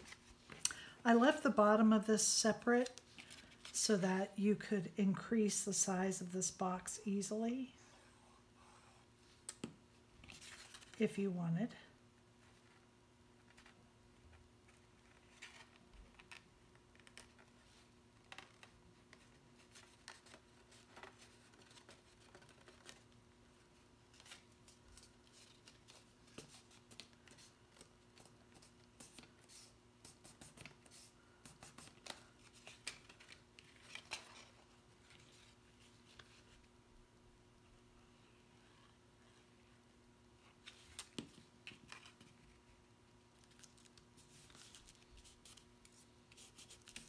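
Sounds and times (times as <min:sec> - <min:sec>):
cardstock rustling and crackling: 0:14.7 - 0:29.7.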